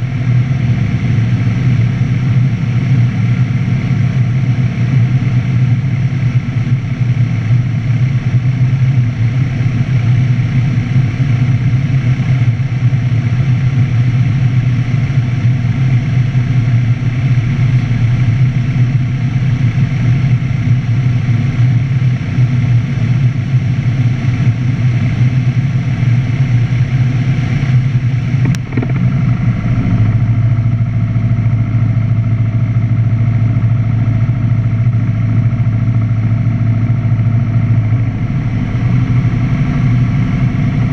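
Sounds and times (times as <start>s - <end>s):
light aircraft engine drone: 0.0s - 40.9s
sharp click: 28.4s - 29.1s.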